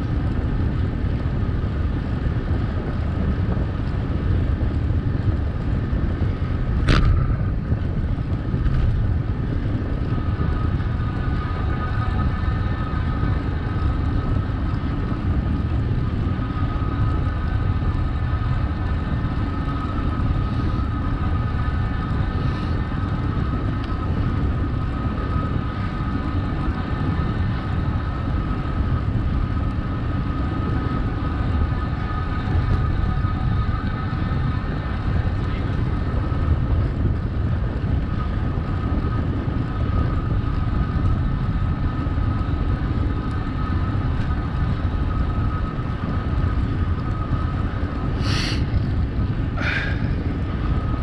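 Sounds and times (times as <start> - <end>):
faint steady whine: 0.0 - 51.0
wind and bicycle riding noise: 0.0 - 51.0.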